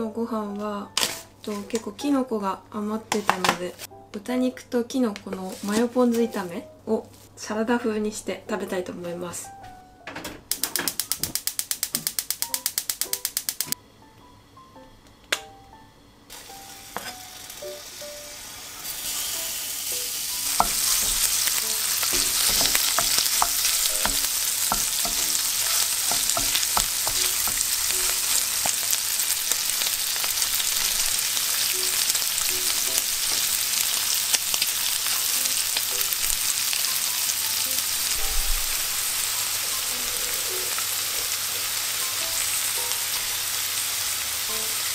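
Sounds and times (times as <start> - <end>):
meat sizzling in a frying pan: 16.3 - 44.9
wooden spatula tapping in pan: 20.5 - 28.8.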